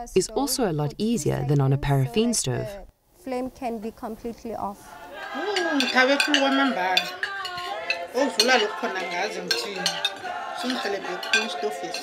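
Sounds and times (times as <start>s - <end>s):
woman talking: 0.0s - 4.9s
cutlery clinking on plates: 5.2s - 12.0s.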